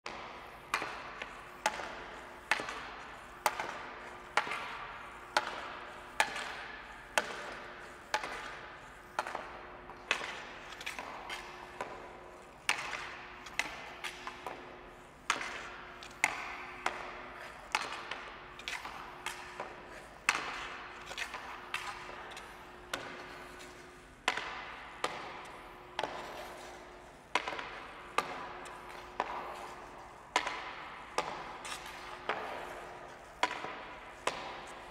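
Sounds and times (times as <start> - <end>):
hockey stick clacking puck: 0.1 - 34.9.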